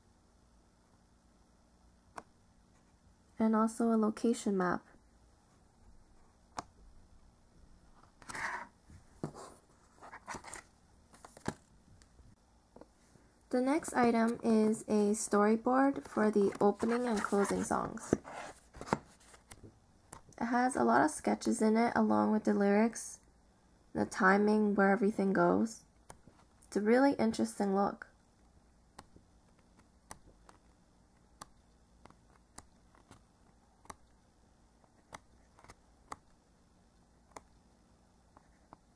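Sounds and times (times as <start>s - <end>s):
paper pages turning: 9.8s - 11.7s, 16.0s - 19.6s.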